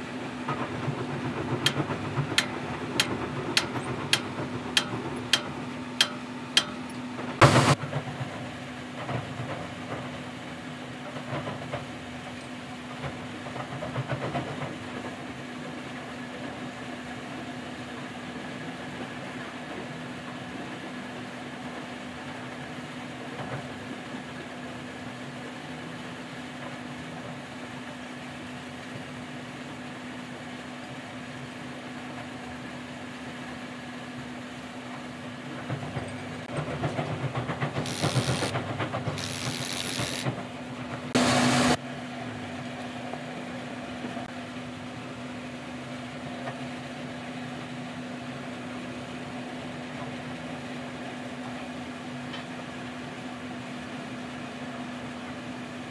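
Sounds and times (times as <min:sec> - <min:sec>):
steady mechanical hum: 0:00.0 - 0:55.9
handling noise: 0:37.8 - 0:40.4.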